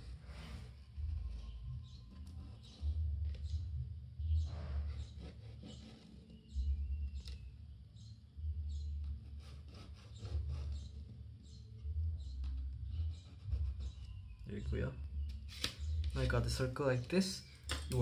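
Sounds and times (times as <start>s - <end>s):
pen scratching on cardboard: 0.0s - 3.6s, 4.3s - 7.4s, 9.0s - 11.6s, 12.9s - 14.2s.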